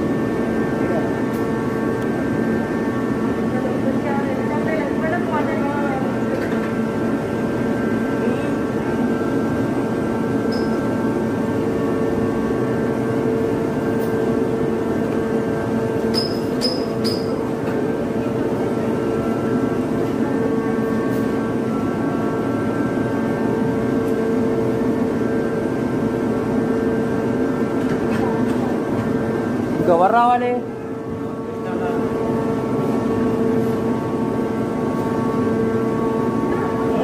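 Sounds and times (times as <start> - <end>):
high squeak: 16.1 - 17.4.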